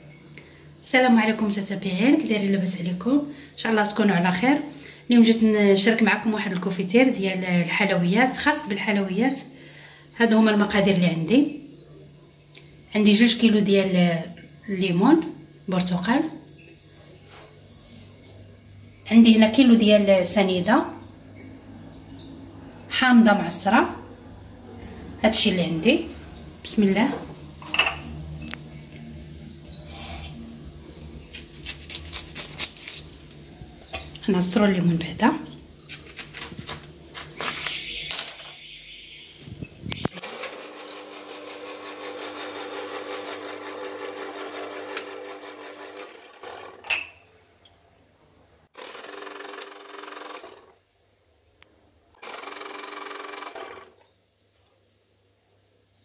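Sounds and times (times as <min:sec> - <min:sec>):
short hiss: 0:29.8 - 0:30.4
electric juicer motor running: 0:40.0 - 0:46.9, 0:48.8 - 0:50.7, 0:52.2 - 0:54.0.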